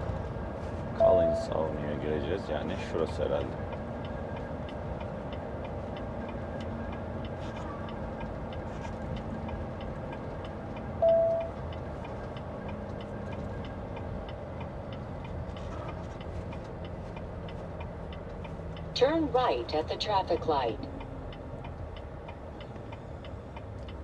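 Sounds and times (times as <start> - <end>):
engine humming: 0.0 - 24.0
turn signal clicking: 3.0 - 24.0
short high beep: 11.0 - 11.5.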